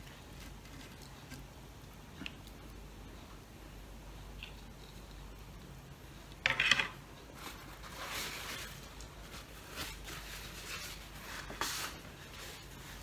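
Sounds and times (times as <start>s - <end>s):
paper napkin rustling: 7.3s - 13.0s.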